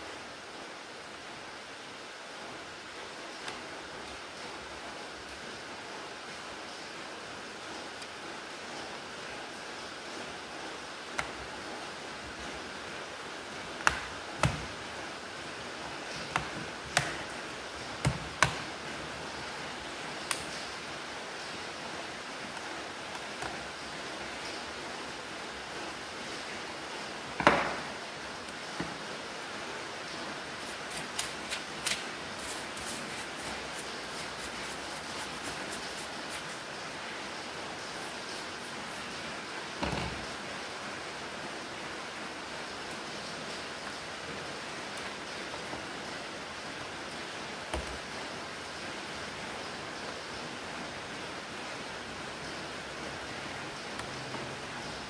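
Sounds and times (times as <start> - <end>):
steady hiss: 0.0 - 53.8
paintbrush scratching on plastic: 30.6 - 36.6, 37.9 - 39.2.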